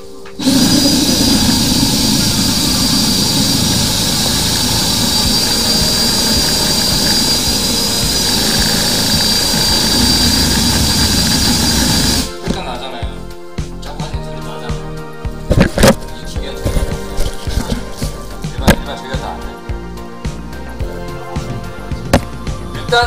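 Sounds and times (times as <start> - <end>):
drain-cleaning machine motor running: 0.4 - 12.6.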